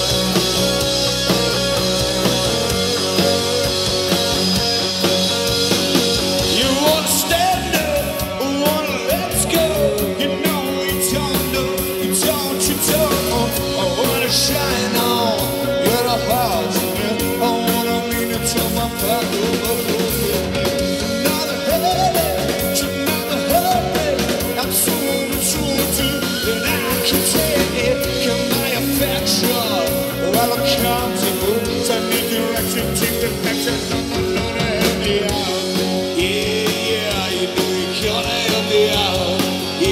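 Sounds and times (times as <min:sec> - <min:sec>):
bass guitar: 0:00.0 - 0:39.9
drums: 0:00.0 - 0:39.9
electric guitars: 0:00.0 - 0:39.9.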